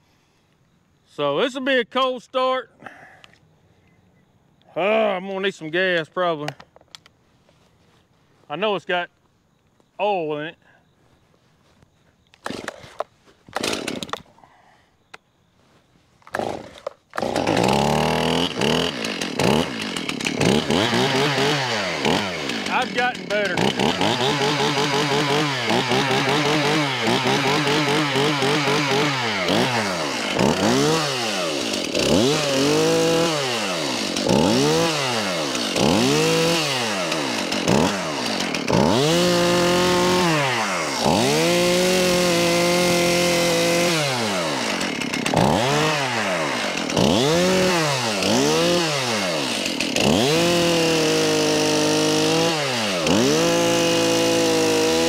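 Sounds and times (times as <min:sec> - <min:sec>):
chainsaw revving: 0:12.4 - 0:14.3, 0:16.3 - 0:55.0.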